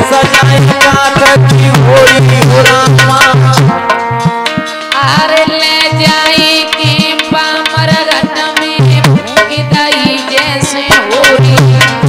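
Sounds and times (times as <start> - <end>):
tabla playing fast rhythm: 0.0 - 12.0.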